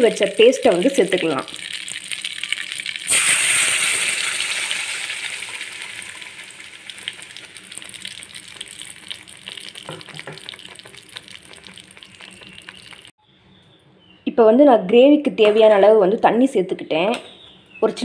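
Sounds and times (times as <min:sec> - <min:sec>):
paste sizzling in hot butter: 0:01.5 - 0:13.1.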